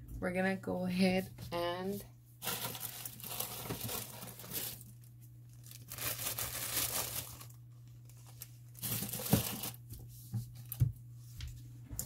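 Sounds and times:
plastic cups crinkling: 2.4 - 10.0.

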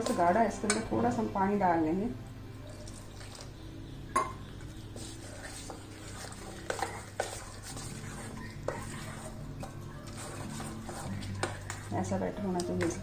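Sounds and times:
spoon stirring thick batter: 0.0 - 0.8, 2.6 - 13.0
spoon clinking against metal bowl: 4.1 - 4.5.

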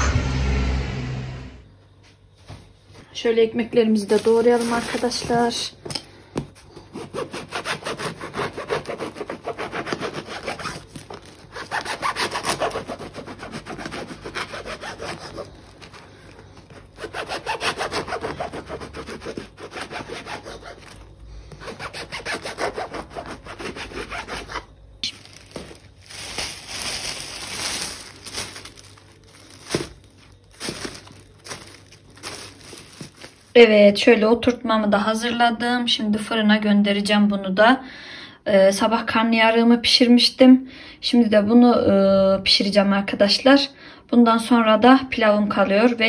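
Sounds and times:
plastic bag rustling: 3.9 - 5.9, 8.2 - 18.3, 19.2 - 22.5, 23.3 - 33.8
knife sawing through crusty bread: 6.8 - 24.7.

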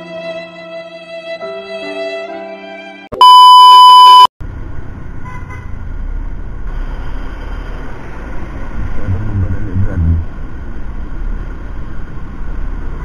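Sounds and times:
violin music: 0.0 - 3.1
loud electronic beep: 3.2 - 4.3.

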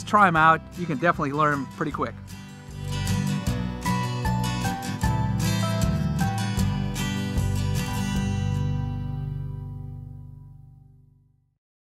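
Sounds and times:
background music held chord: 0.0 - 10.9.

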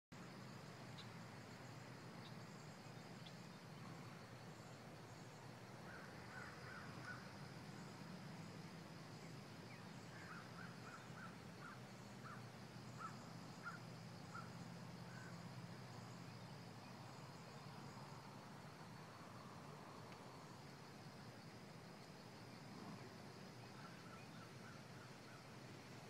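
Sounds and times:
faint short bird calls: 5.9 - 7.3, 9.8 - 15.4.

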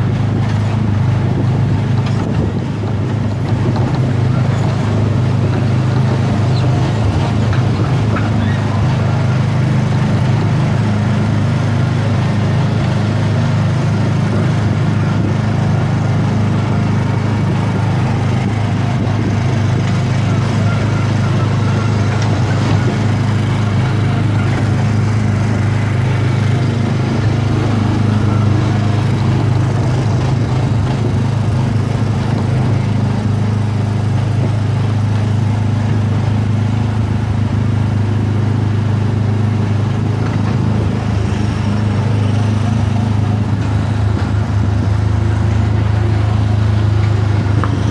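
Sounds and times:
small gasoline engine running: 0.0 - 47.9.

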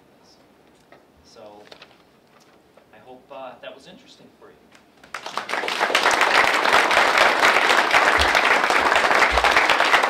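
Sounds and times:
audience applauding: 5.0 - 10.0.

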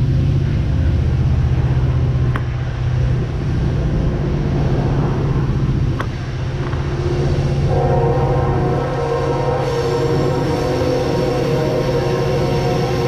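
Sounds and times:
wheels rumbling on concrete: 0.0 - 10.0.

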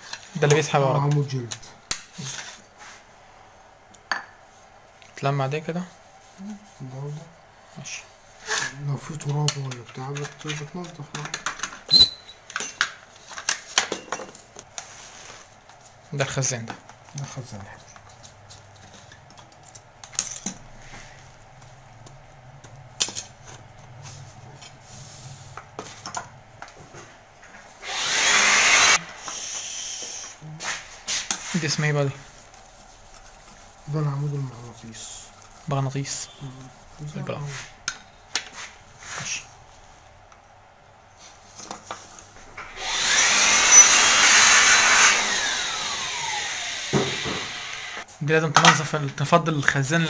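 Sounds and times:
air blower blowing: 27.8 - 30.4, 42.8 - 48.0.

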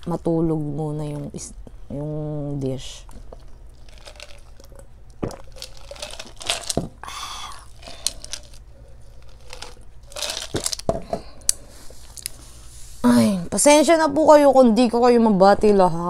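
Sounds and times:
person sipping: 3.0 - 13.3.

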